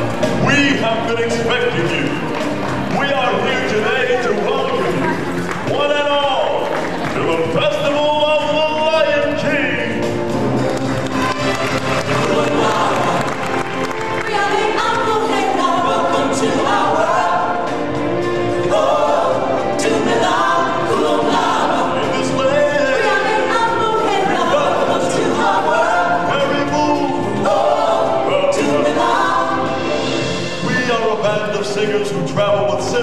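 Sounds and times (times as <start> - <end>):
group singing in harmony: 11.7 - 33.0.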